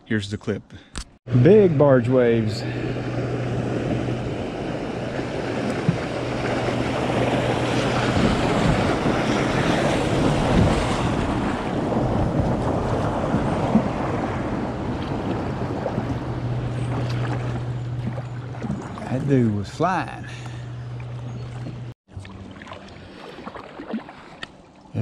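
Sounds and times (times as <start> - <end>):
low steady hum: 0.0 - 23.8
wind buffeting microphone: 1.3 - 19.7
waves splashing against kayak: 1.5 - 25.0.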